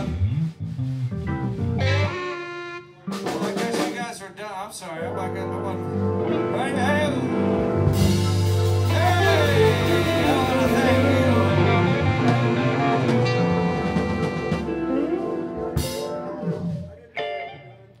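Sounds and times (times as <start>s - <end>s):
bending electric guitar notes: 0.0s - 3.5s, 5.0s - 18.0s
blues band playing: 0.0s - 18.0s.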